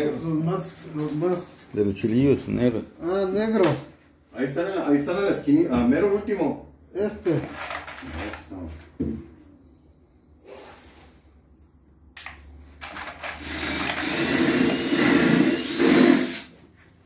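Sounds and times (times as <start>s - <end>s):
power drill running: 12.8s - 16.6s.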